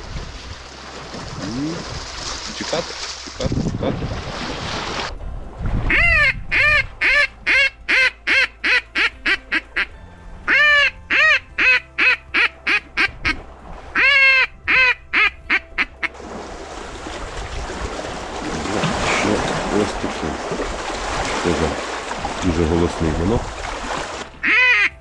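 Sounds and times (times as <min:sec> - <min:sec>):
duck call quacking: 0:05.9 - 0:09.9, 0:10.5 - 0:13.4, 0:14.0 - 0:16.1, 0:24.4 - 0:25.0.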